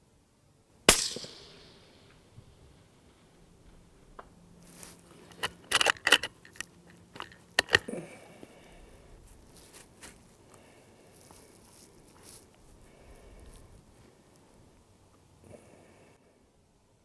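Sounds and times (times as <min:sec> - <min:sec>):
rifle bolt clicking and clacking: 0:05.3 - 0:07.9.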